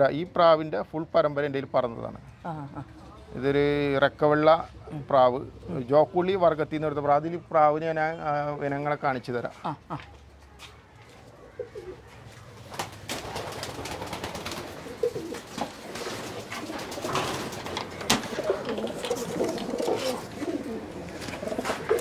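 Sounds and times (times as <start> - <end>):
pigeons cooing: 11.3 - 22.0.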